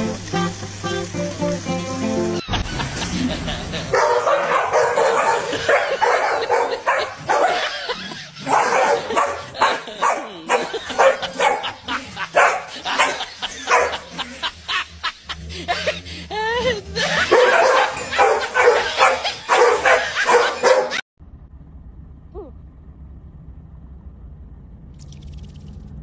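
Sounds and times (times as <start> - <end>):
dog barking and yipping: 3.9 - 14.2, 17.0 - 21.0.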